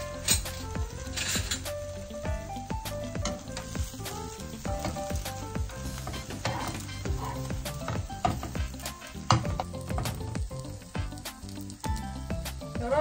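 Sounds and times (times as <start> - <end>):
metal utensils scraping a pan: 0.0 - 2.0, 3.2 - 10.3
food sizzling in a frying pan: 0.0 - 13.0.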